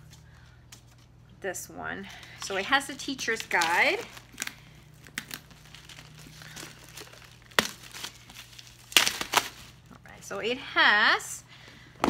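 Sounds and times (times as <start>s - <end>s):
packaging being torn open: 2.4s - 9.9s.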